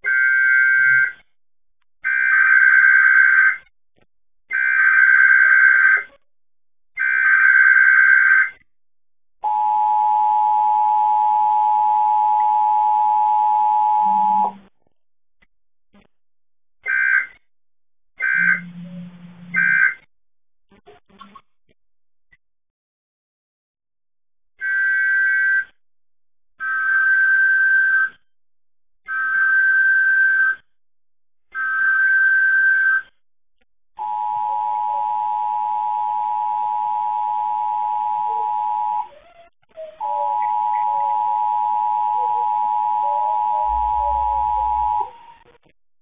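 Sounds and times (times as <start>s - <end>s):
two-tone attention signal: 11.8s - 14.6s, 40.0s - 45.2s.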